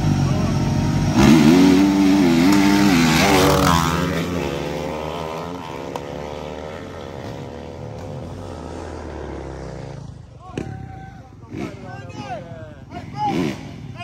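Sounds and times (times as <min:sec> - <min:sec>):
dirt bike engines revving: 0:00.0 - 0:14.0.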